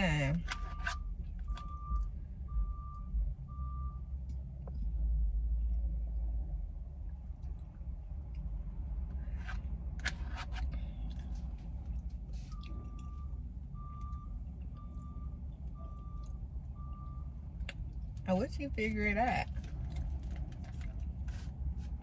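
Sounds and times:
truck reversing alarm beeping: 0.0 - 4.2, 12.4 - 18.7
low engine rumble: 0.0 - 22.0.

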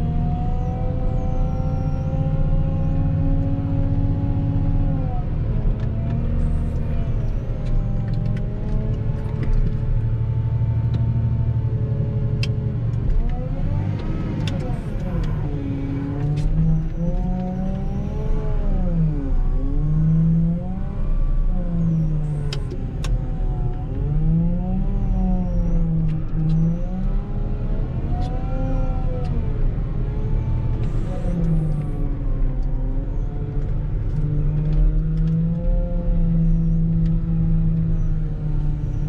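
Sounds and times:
diesel engine revving: 13.0 - 39.0.

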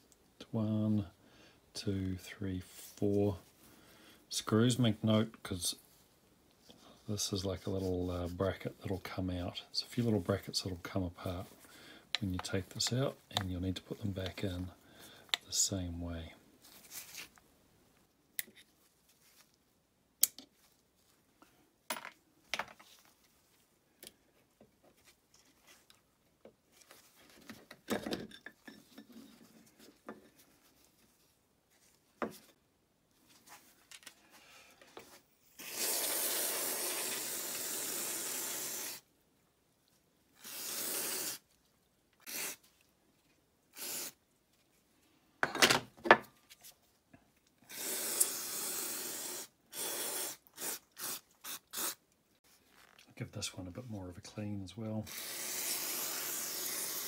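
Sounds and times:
spray hissing: 35.6 - 39.0, 40.4 - 41.4, 42.3 - 42.6, 43.8 - 44.2, 47.7 - 52.0, 55.1 - 57.0.

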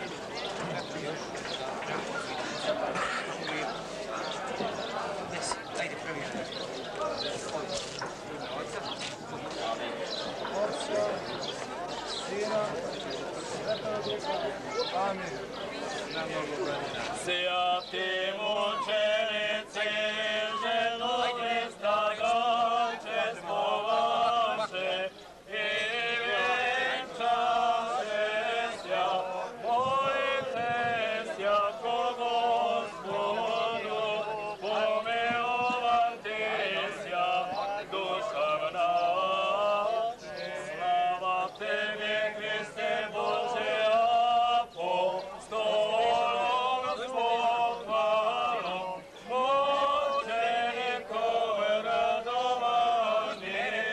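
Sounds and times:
men singing church chant: 17.2 - 53.9.

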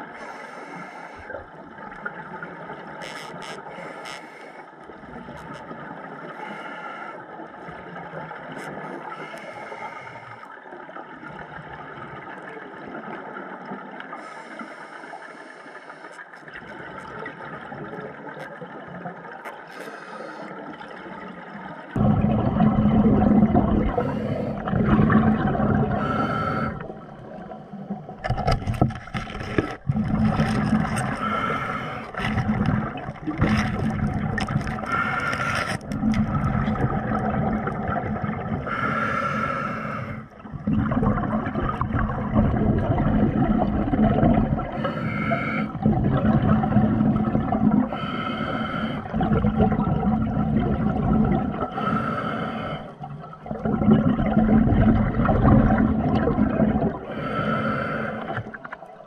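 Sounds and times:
low hum and water noise: 0.0 - 59.0
exhaled bubbles rushing underwater: 16.4 - 19.4, 20.6 - 59.0.

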